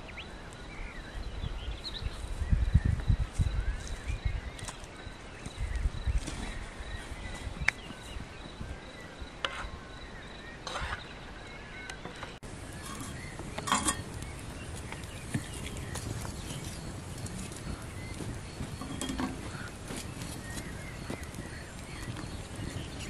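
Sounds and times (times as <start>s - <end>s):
birds chirping: 0.0s - 23.0s
firewood and pan knocks: 12.1s - 16.8s, 18.6s - 20.0s.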